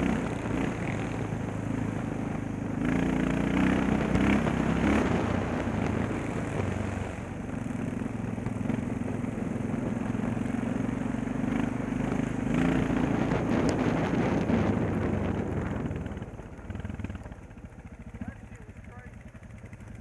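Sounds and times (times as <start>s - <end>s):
dirt bike engine: 0.0s - 20.0s.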